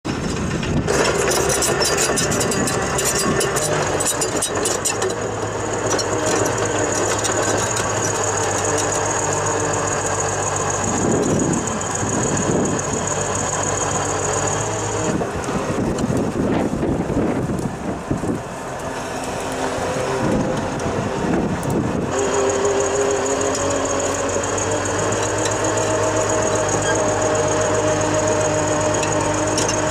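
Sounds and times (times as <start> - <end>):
diesel engine running: 0.0 - 29.9.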